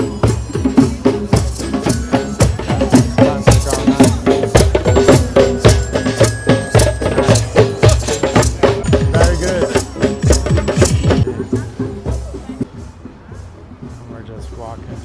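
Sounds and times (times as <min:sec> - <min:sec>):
drumming group playing: 0:00.0 - 0:14.0
held melody notes: 0:00.0 - 0:15.0
rattling percussion: 0:00.0 - 0:15.0.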